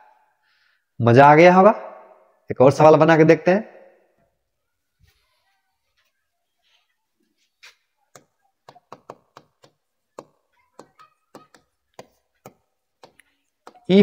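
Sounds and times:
chalk tapping on blackboard: 8.1 - 13.9.

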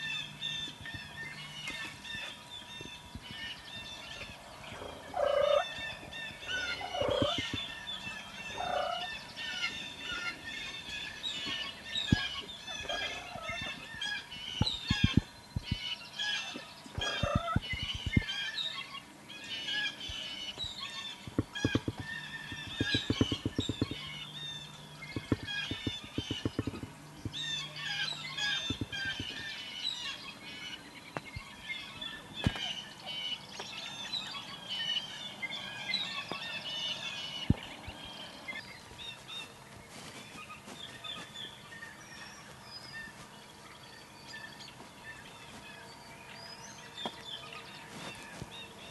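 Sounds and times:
songbirds chirping: 0.0 - 48.9
turkey gobbling: 4.2 - 15.2, 16.3 - 18.3.

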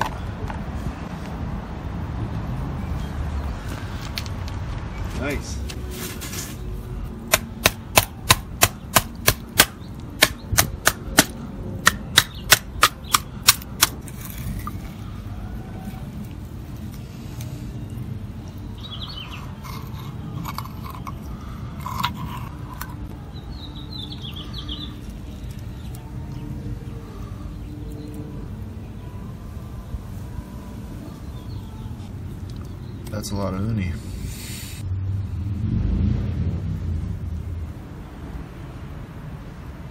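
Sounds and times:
bird chirps: 17.5 - 20.1, 23.3 - 26.0.

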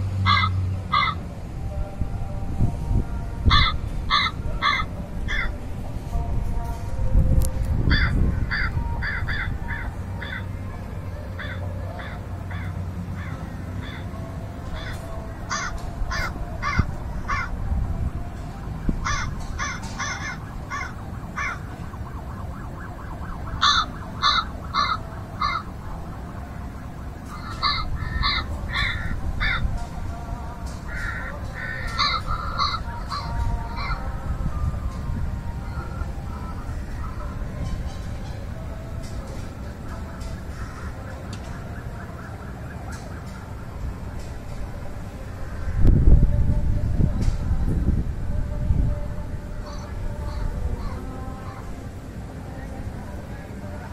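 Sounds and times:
crows cawing: 0.3 - 1.2, 3.5 - 5.6, 7.9 - 10.5, 11.4 - 17.5, 19.0 - 21.6, 23.6 - 25.7, 27.3 - 29.6, 30.9 - 34.0
steady low rumble: 0.8 - 42.5, 43.2 - 53.9.

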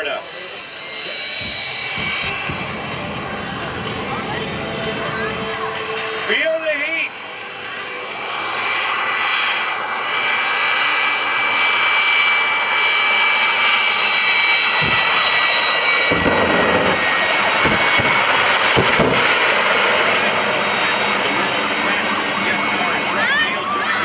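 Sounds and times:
high turbine whine: 0.0 - 24.0
loud jet engine roar: 0.0 - 24.0
deep rumbling surges: 0.8 - 7.2, 14.6 - 23.9.

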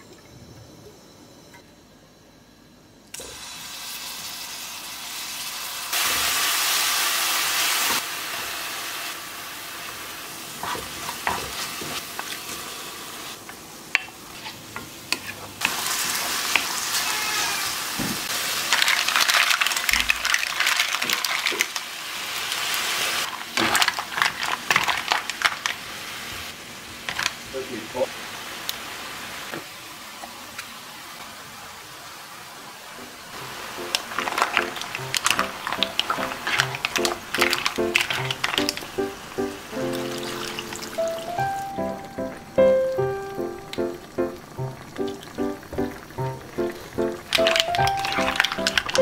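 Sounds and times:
food sizzling in oil: 3.2 - 30.2, 30.8 - 49.0
shells clattering in pan: 33.8 - 38.9, 47.3 - 49.0.

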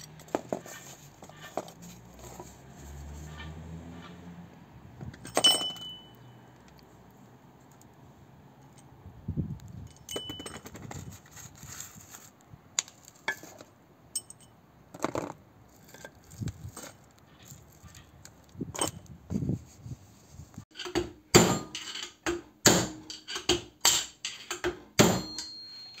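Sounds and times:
metallic clinks and taps: 5.1 - 6.9, 9.8 - 10.9, 13.3 - 14.6.

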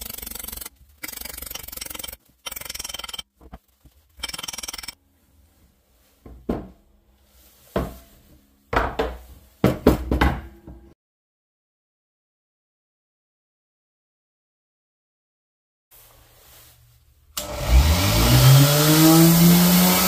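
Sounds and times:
scraping strokes: 0.0 - 6.2.

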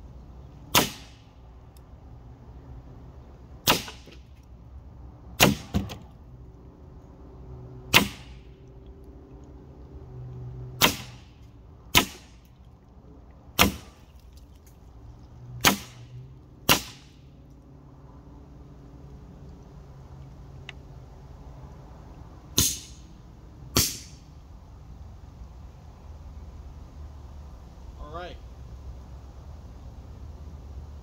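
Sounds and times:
air pistol shots: 0.7 - 1.3, 3.6 - 4.2, 5.4 - 6.0, 7.9 - 8.4, 10.8 - 12.4, 13.6 - 14.0, 15.6 - 16.1, 16.7 - 17.2, 22.6 - 23.0, 23.8 - 24.2.

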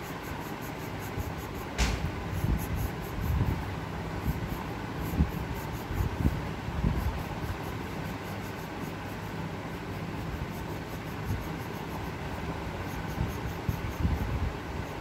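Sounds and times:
low background rumble: 0.2 - 15.0.

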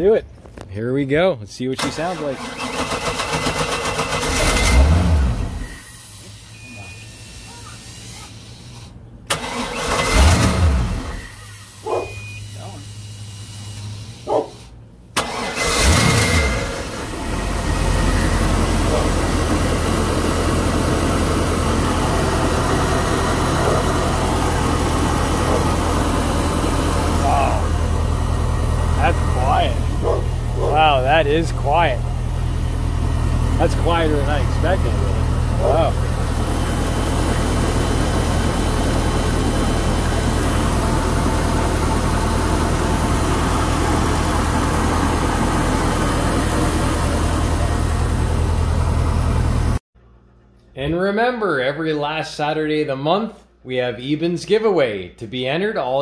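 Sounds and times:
boat engine idling: 17.4 - 49.8.

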